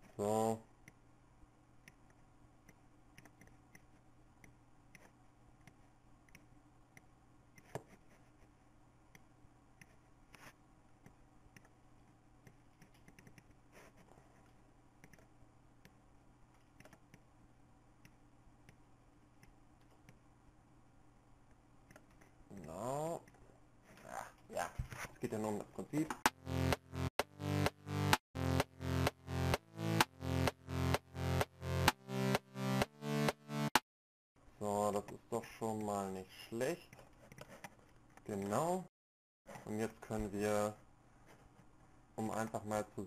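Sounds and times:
computer mouse clicks: 1.8 - 7.8, 11.0 - 11.8, 12.4 - 13.6, 15.0 - 16.0, 16.6 - 17.3, 21.8 - 23.4.

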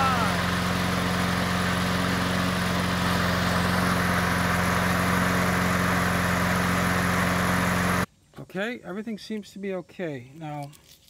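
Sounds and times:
push mower engine running: 0.0 - 8.1.

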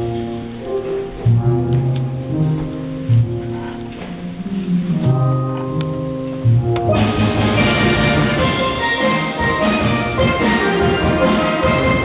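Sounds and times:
steel band playing: 0.0 - 12.0.

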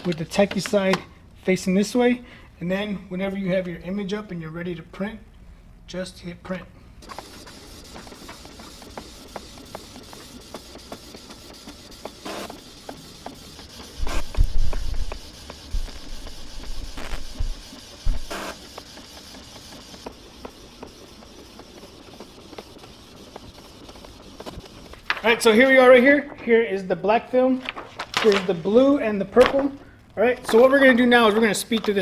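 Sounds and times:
inkjet printer printing: 0.0 - 1.0, 7.0 - 26.4, 30.2 - 32.0
printer hiss: 7.0 - 26.3.

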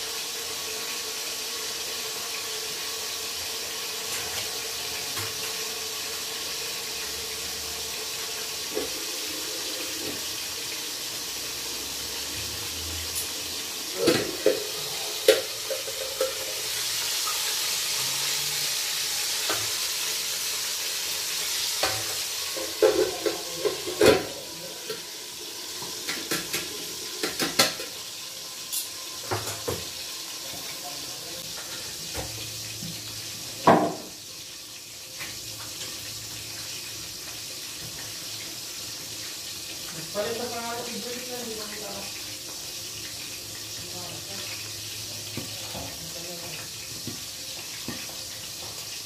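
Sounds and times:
fish sizzling in oil: 0.0 - 49.0
metal utensils clinking on pan: 14.0 - 16.6.

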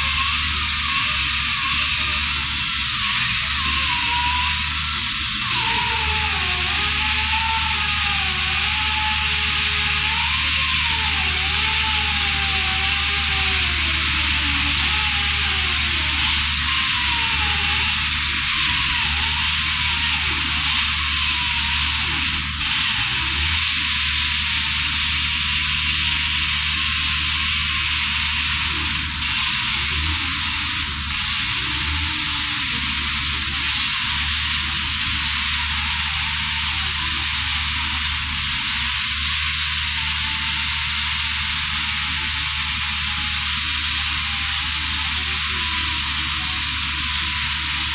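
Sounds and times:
chainsaw cutting masonry: 0.0 - 47.9.

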